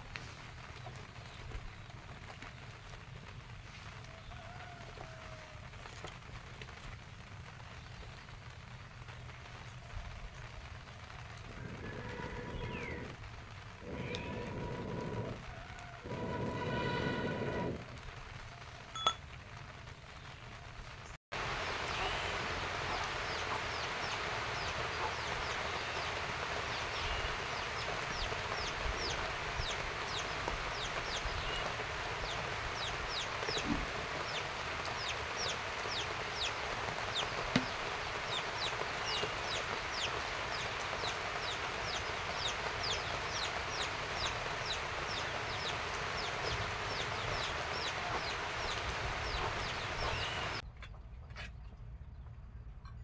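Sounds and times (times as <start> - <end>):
steady hiss: 8.2 - 18.5
chickens peeping: 11.4 - 13.2, 22.9 - 50.6.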